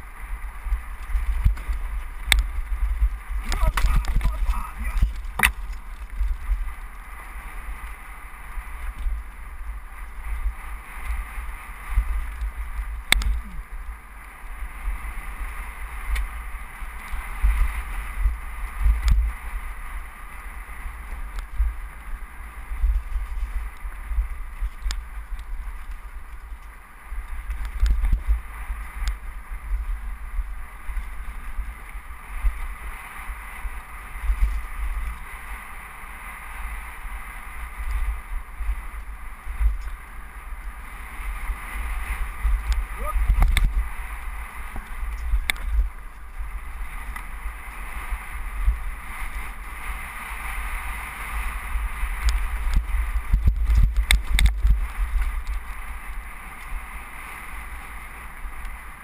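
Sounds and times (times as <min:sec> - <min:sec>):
wind buffeting microphone: 0:00.0 - 0:59.0
bike rattling over stones: 0:00.5 - 0:10.8, 0:51.4 - 0:56.8
tyres rolling on loose rock: 0:03.3 - 0:07.0.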